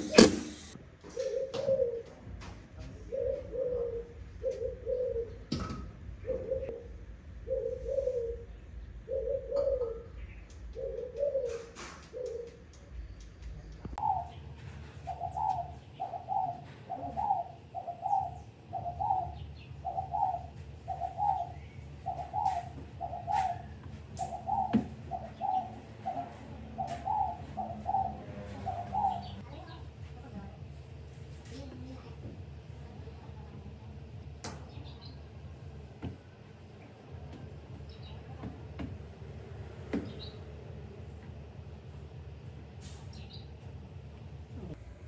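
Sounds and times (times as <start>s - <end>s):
bird cooing: 0.0s - 2.2s, 3.0s - 5.5s, 6.2s - 12.7s, 14.0s - 29.4s.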